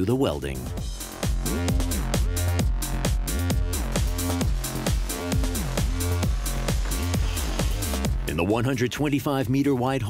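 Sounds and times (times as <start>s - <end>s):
electronic music with steady beat: 0.0s - 9.6s
synth bass notes sliding down: 1.2s - 8.4s.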